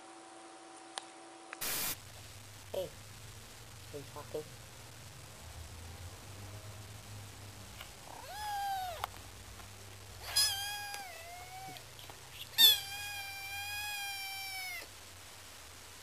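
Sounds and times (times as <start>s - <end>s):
kitten meowing: 8.1s - 9.1s, 10.2s - 14.9s.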